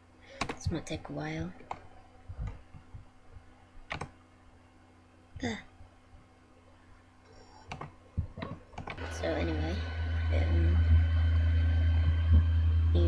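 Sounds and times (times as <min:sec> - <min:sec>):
faint low hum: 0:00.0 - 0:13.0
computer clicks: 0:03.9 - 0:04.1.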